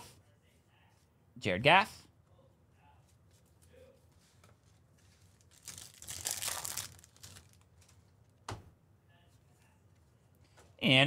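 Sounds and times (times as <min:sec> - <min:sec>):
trading cards rustling: 0:05.0 - 0:08.0.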